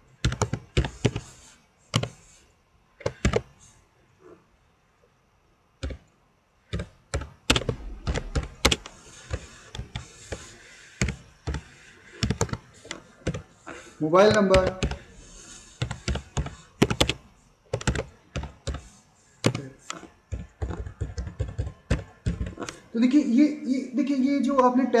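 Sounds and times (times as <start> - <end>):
computer keyboard typing: 0.2 - 2.2, 3.0 - 3.5, 5.8 - 6.1, 6.7 - 22.9.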